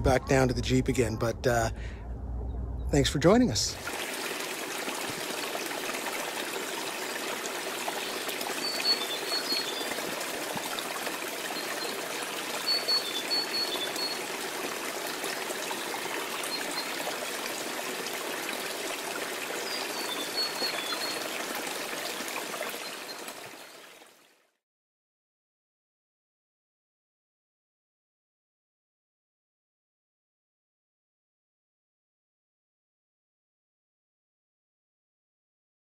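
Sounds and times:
waterfall splashing into pool: 0:03.8 - 0:24.3.

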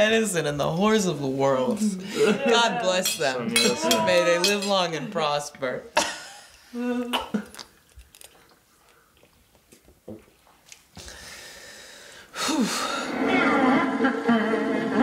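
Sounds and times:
people sipping drinks: 0:01.7 - 0:04.7, 0:06.5 - 0:11.2
music: 0:13.2 - 0:15.0.

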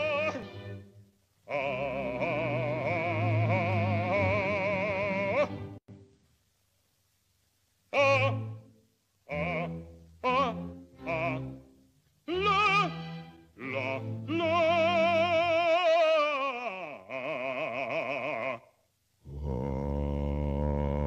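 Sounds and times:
operatic singing with vibrato: 0:00.0 - 0:05.8, 0:07.9 - 0:18.7.

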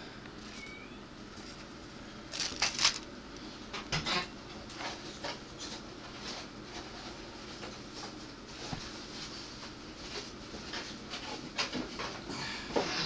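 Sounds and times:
plastic bags rustling: 0:02.3 - 0:03.1.

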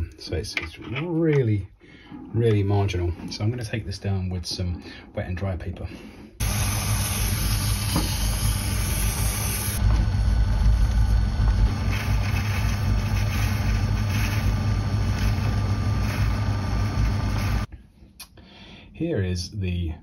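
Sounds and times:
lathe tool cutting metal: 0:06.4 - 0:10.3
lathe motor hum: 0:06.4 - 0:17.7.

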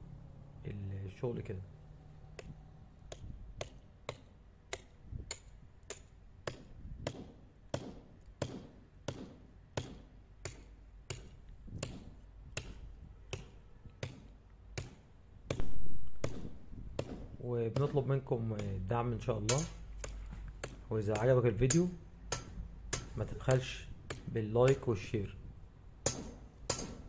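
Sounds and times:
hammer striking steel bar: 0:02.4 - 0:18.0, 0:19.4 - 0:23.3, 0:26.0 - 0:27.0.

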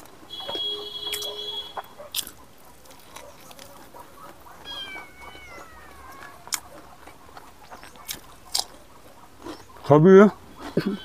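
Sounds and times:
chewing and lip-smacking clicks: 0:00.0 - 0:09.9
cat meowing: 0:04.6 - 0:06.7.

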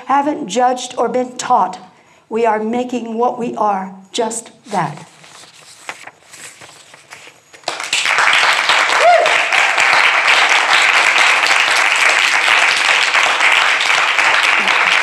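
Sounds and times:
audience applauding: 0:07.6 - 0:15.0.

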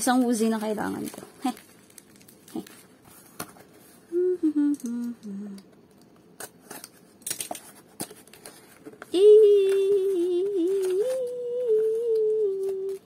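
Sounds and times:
person humming: 0:04.1 - 0:05.8, 0:09.1 - 0:13.0.

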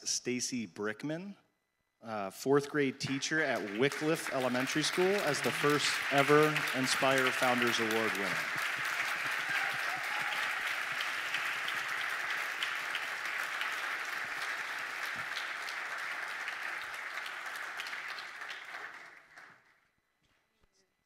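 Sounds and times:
audience applauding: 0:03.0 - 0:19.8.

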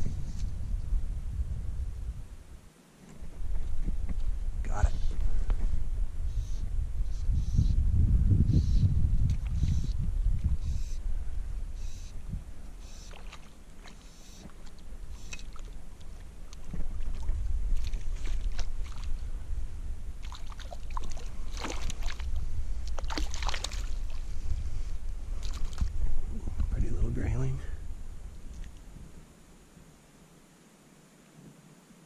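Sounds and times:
wind rumble on microphone: 0:00.0 - 0:30.1
fish splashing in water: 0:16.6 - 0:19.2, 0:20.2 - 0:24.2.

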